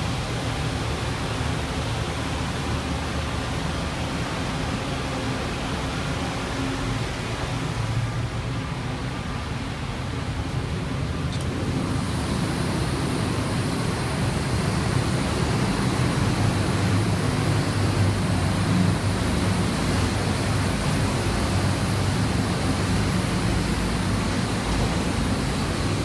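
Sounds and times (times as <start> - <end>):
low machinery hum: 0.0 - 26.0
rush of air: 10.5 - 26.0.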